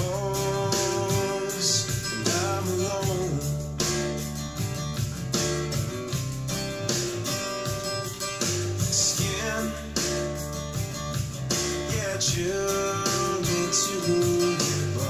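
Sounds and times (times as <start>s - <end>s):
guitar music through speakers: 0.0s - 15.0s.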